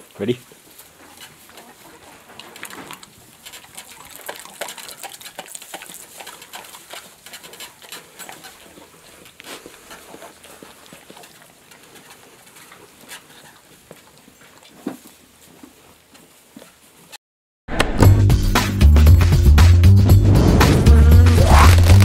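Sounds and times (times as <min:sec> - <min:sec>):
milk squirting: 0:02.6 - 0:09.4, 0:21.4 - 0:22.0
dog gulping and smacking: 0:02.6 - 0:11.9.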